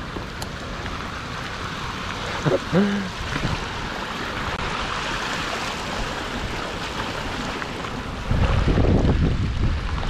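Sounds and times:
bike tyres splashing through water: 0.0s - 10.0s
wind buffeting microphone: 5.8s - 10.0s.

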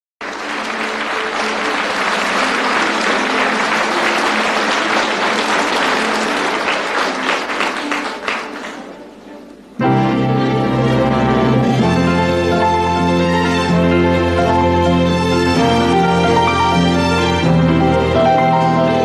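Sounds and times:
audience applauding: 0.2s - 9.8s
faint music: 0.2s - 19.0s.

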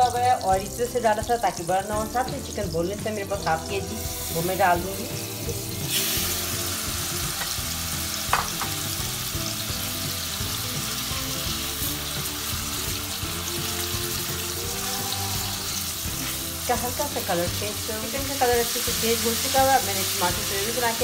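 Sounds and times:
chicken sizzling in oil: 0.0s - 21.0s.

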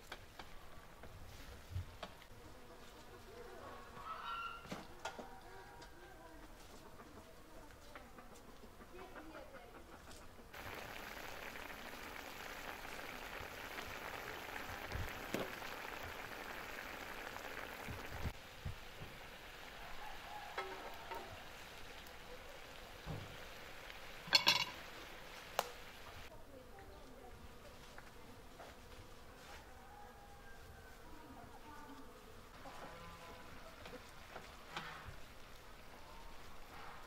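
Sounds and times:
chicken frying in sauce sizzling: 10.5s - 26.3s, 33.5s - 36.9s
sharp pops of frying: 10.5s - 26.3s.

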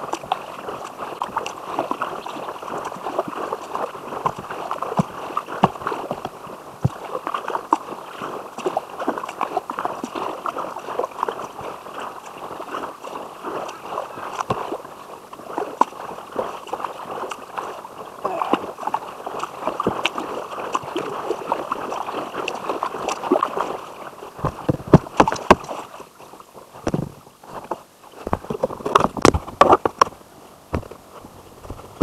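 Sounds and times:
water splashing against kayak: 0.0s - 32.0s.

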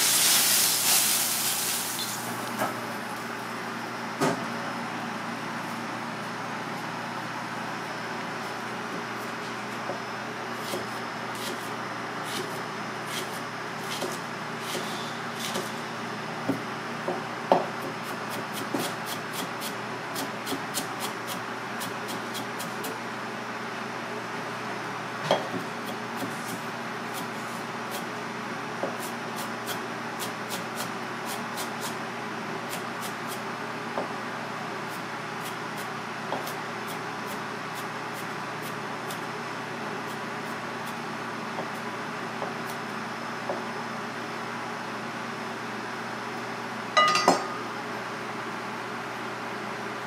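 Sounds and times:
kitchen hum: 0.0s - 31.8s, 46.8s - 48.6s.

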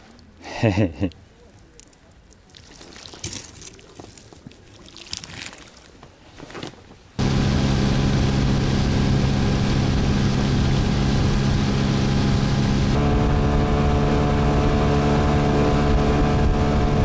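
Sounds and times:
motorboat engine drone: 7.2s - 17.0s.

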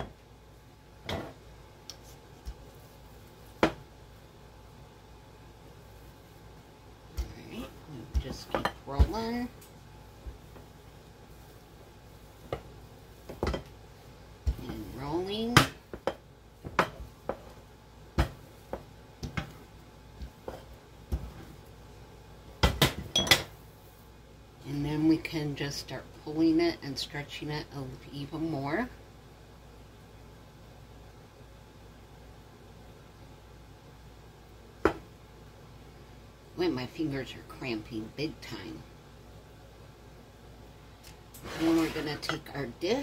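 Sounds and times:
rolling pin knocking on countertop: 3.6s - 3.8s, 15.5s - 17.5s.

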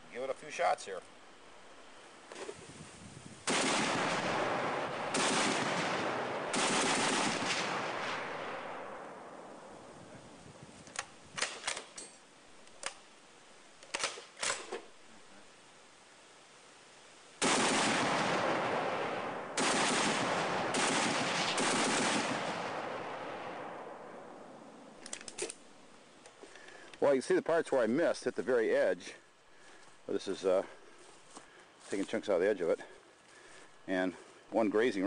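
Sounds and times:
machine gun firing: 3.4s - 9.0s, 17.4s - 23.4s.

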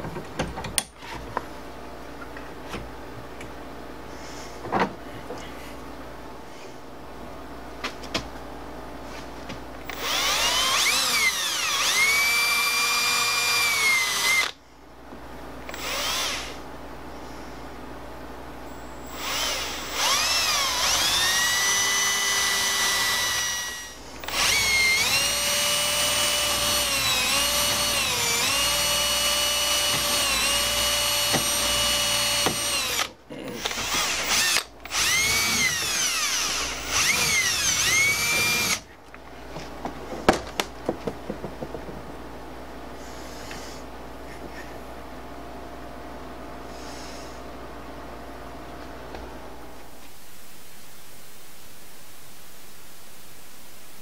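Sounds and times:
cordless drill whining: 9.8s - 14.6s, 15.7s - 16.6s, 19.0s - 38.9s.

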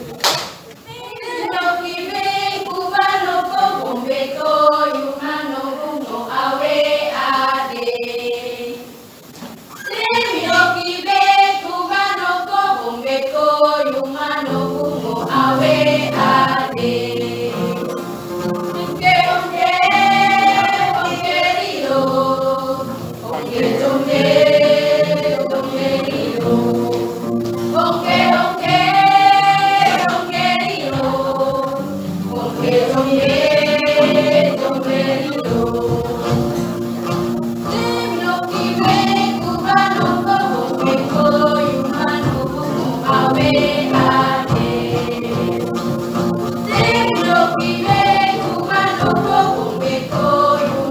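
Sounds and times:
women's choir singing in harmony: 0.9s - 50.9s.

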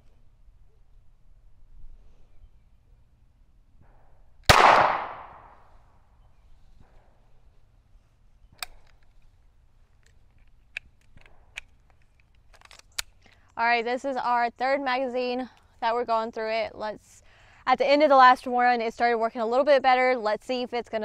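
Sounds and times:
pistol shot echoing: 4.5s - 5.6s.

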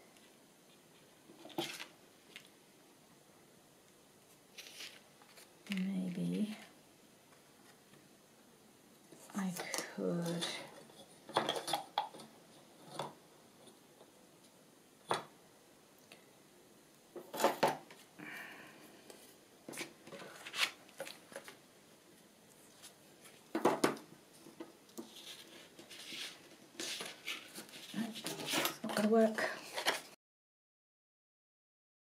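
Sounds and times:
paper rustling: 4.5s - 5.9s, 19.7s - 21.6s, 25.0s - 30.2s.

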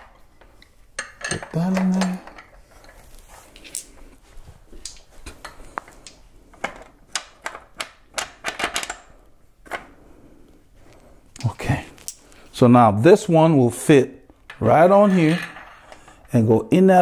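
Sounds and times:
metal parts clicking and clinking: 1.0s - 3.0s.

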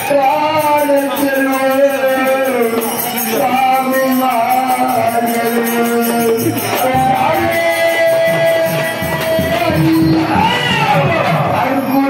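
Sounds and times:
devotional song melody: 0.0s - 12.0s
drum beats: 0.0s - 12.0s
jingling tambourine rhythm: 0.0s - 12.0s.

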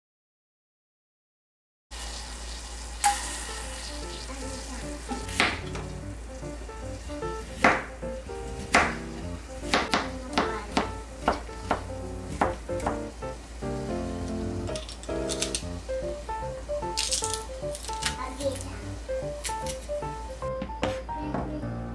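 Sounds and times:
steady hiss: 2.1s - 20.6s
knife chopping on plastic board: 5.3s - 5.9s, 7.4s - 13.2s.

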